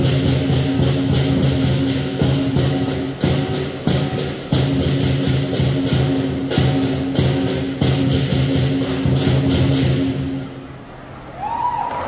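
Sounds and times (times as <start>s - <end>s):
lion dance drum beating: 0.0s - 10.4s
cymbals clashing: 0.0s - 10.7s.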